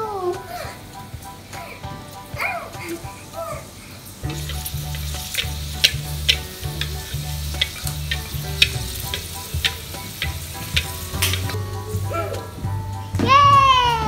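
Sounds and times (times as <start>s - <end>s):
cracker sizzling in hot oil: 2.8s - 12.5s
spatula ticking in wok: 4.2s - 11.6s.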